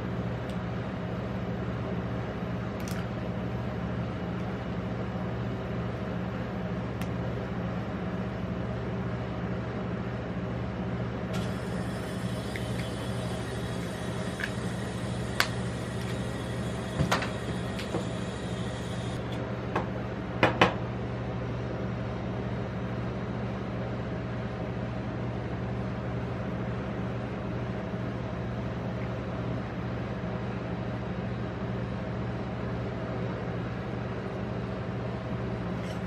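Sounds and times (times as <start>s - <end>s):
refrigerated cold plate humming: 0.0s - 20.6s, 33.9s - 36.0s.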